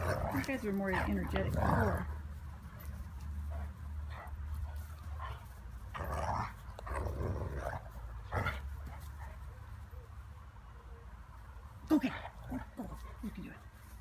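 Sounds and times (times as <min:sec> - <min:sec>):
dogs play growling: 0:00.0 - 0:09.4, 0:12.1 - 0:13.5.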